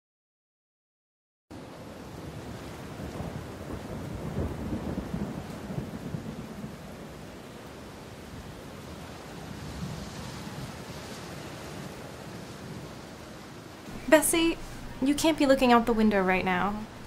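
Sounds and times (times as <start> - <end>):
low rolling thunder: 1.5 - 13.1
steady rain: 1.5 - 17.0.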